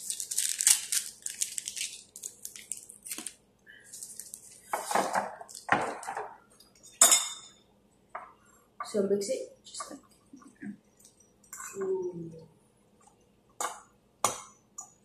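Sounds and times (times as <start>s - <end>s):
plastic packet crinkling: 0.0s - 4.7s.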